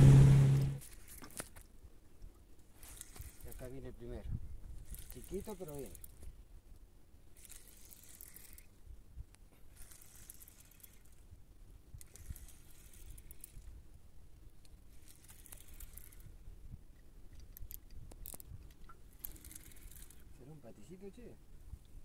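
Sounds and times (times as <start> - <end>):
low steady rumble: 0.0 - 0.8
spinning reel cranking: 2.8 - 3.9, 4.8 - 6.2, 7.4 - 8.7, 9.7 - 11.3, 12.0 - 13.7, 14.9 - 16.3, 19.1 - 20.3.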